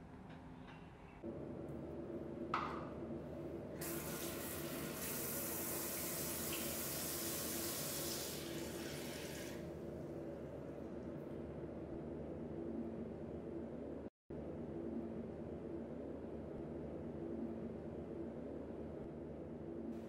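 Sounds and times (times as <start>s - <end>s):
tap water running into basin: 3.8s - 9.7s.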